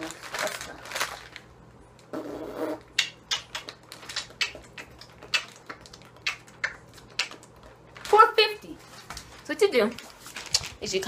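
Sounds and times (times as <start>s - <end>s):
aluminium foil crinkling: 0.0s - 2.1s, 3.6s - 6.1s, 6.9s - 11.0s.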